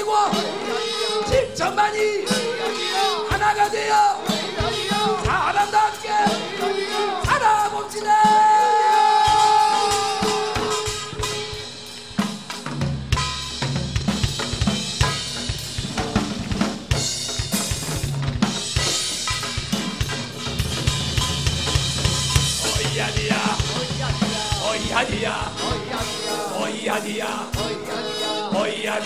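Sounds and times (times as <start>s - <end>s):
drum kit playing a beat: 0.0s - 29.0s.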